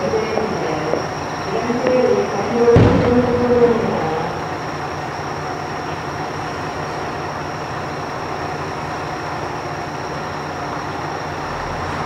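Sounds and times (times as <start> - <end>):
firework deep boom: 0.4 - 4.8.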